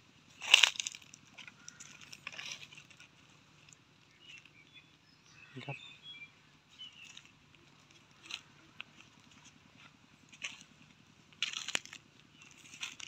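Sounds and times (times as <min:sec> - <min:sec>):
footsteps crunching on dry leaves: 0:00.3 - 0:03.2, 0:06.8 - 0:13.0.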